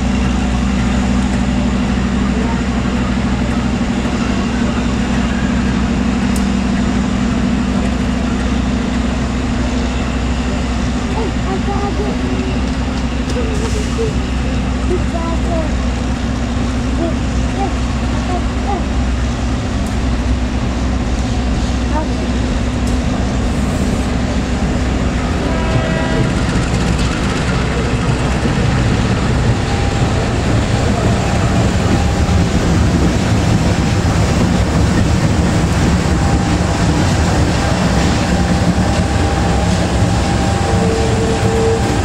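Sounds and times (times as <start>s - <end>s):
locomotive engine running: 0.0s - 42.0s
horn-like steady tone: 25.1s - 26.7s, 38.3s - 42.0s
wheels clacking over rails: 25.6s - 42.0s.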